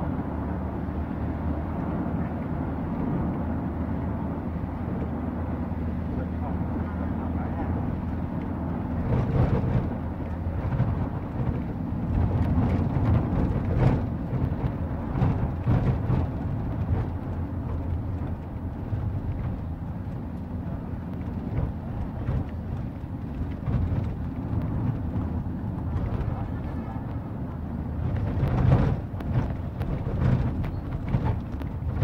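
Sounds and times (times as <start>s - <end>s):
vehicle rumble: 0.0s - 32.0s
wind buffeting microphone: 2.6s - 32.0s.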